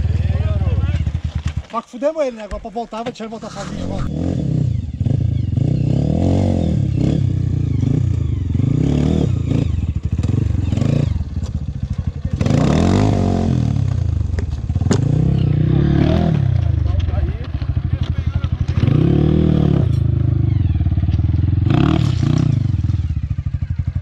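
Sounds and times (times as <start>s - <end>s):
dirt bike engine revving: 3.4s - 24.0s.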